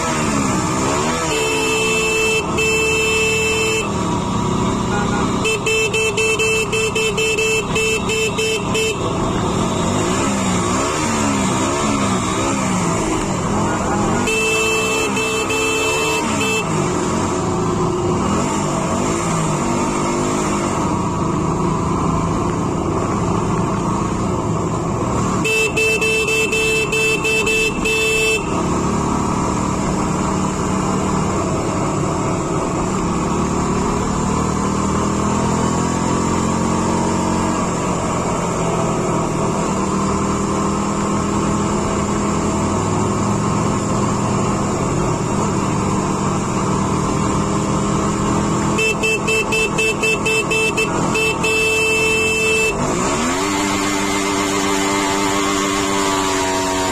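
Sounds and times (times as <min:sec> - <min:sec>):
wind and road noise: 0:00.0 - 0:56.9
horn blast: 0:00.9 - 0:04.0, 0:13.6 - 0:16.9, 0:48.7 - 0:53.6.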